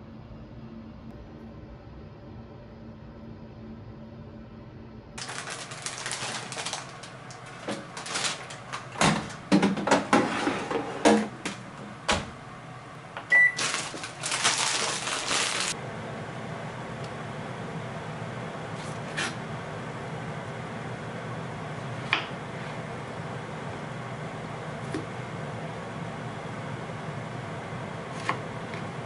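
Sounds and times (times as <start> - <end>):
electronic appliance beep: 13.3 - 13.9.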